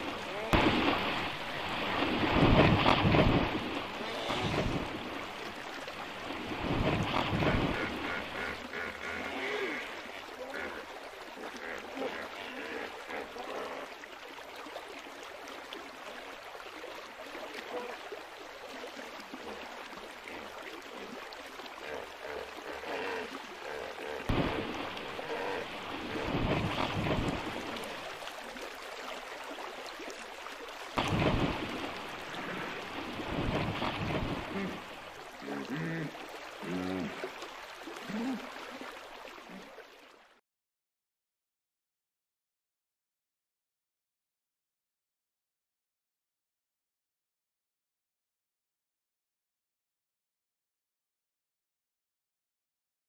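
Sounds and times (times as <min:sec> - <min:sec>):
hippos splashing: 0:00.0 - 0:13.7, 0:17.0 - 0:39.9
steady rush of water: 0:00.0 - 0:40.4.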